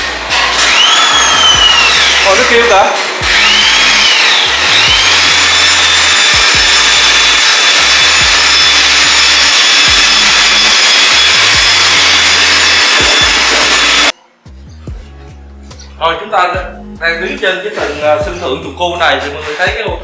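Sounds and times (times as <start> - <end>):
electric hoist motor whining: 0.0 - 14.1.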